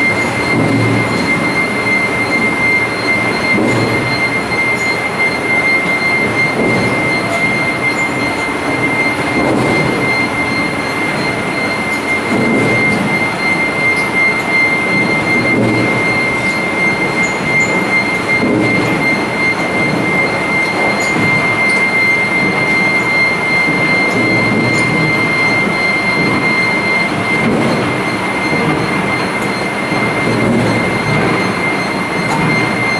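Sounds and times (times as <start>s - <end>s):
high-pitched machine whine: 0.0s - 32.9s
husking machine running: 0.0s - 32.9s.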